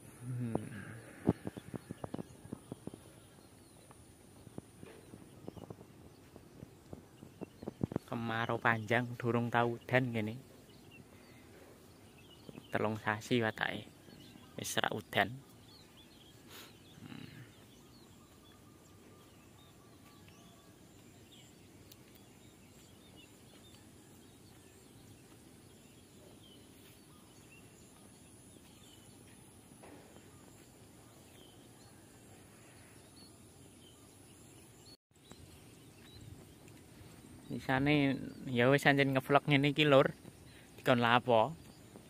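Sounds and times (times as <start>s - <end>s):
faint bird chirps: 0.0s - 42.0s.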